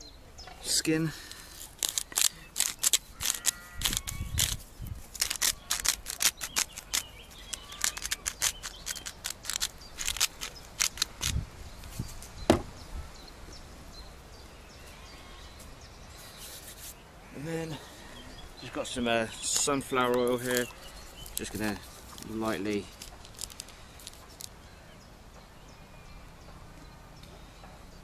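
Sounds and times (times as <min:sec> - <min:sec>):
salt grinder clicking: 0:05.2 - 0:11.3
sharp knock: 0:12.5 - 0:12.7.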